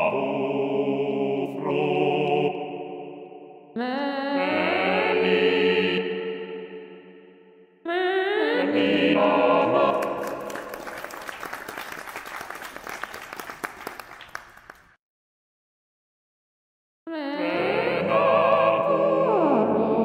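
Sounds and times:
computer voices singing chord: 0.0s - 11.2s, 17.1s - 20.0s
audience applause: 9.9s - 15.0s.

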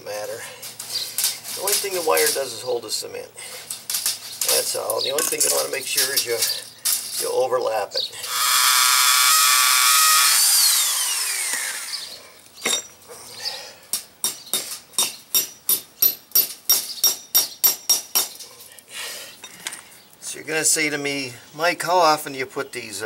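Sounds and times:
power drill whining: 8.2s - 12.2s
hammer striking nail: 14.2s - 18.4s.

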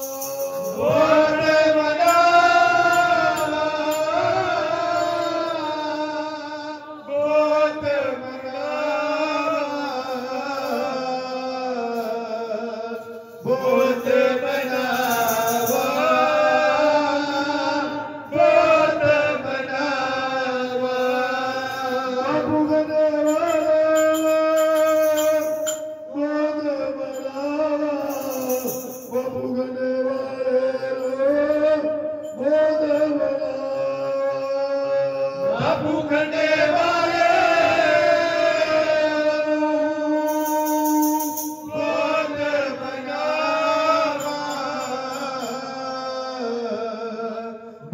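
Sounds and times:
group of men chanting: 0.6s - 12.0s, 13.5s - 22.8s, 33.9s - 39.9s, 41.7s - 47.5s
metal tongs jingling: 23.3s - 26.0s, 40.3s - 41.7s.

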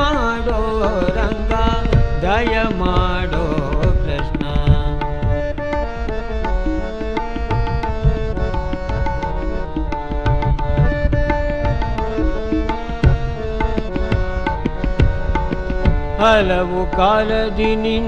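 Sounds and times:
tabla rhythm: 0.0s - 18.0s.

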